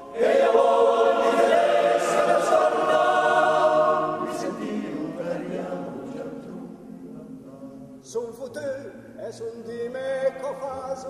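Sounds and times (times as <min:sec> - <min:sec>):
men's choir singing: 0:00.0 - 0:06.9.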